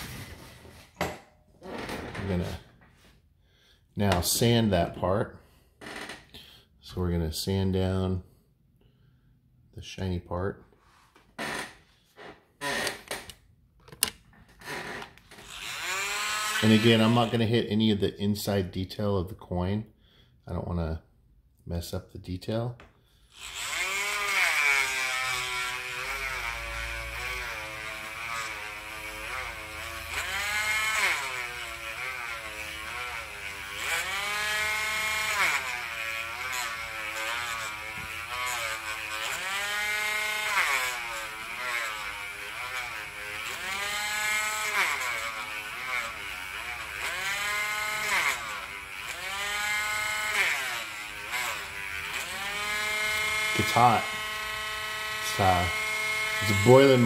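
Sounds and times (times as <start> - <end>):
rotary tool motor whine: 14.6 - 17.3, 23.3 - 57.0.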